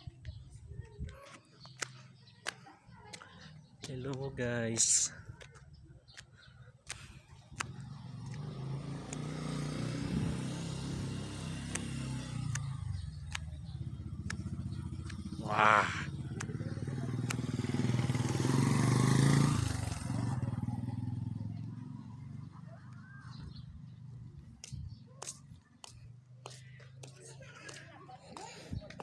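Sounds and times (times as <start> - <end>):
motorcycle engine running: 6.4 - 29.0
loud cry: 15.4 - 16.1.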